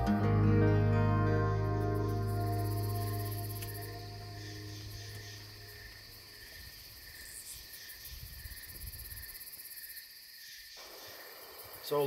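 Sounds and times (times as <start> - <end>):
crickets chirring: 0.8 - 12.0.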